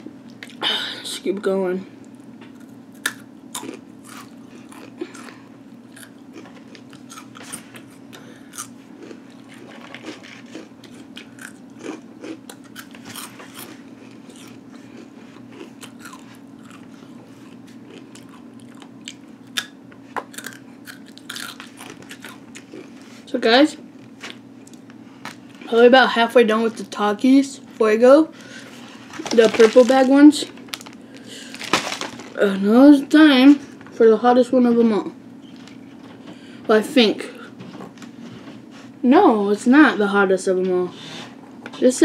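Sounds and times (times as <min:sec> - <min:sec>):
chips crunching: 0:02.5 - 0:23.0, 0:28.4 - 0:33.1.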